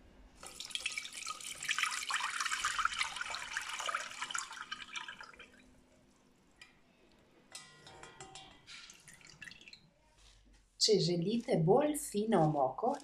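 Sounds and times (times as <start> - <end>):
liquid pouring through a sieve: 0.4 - 5.7, 8.0 - 10.0.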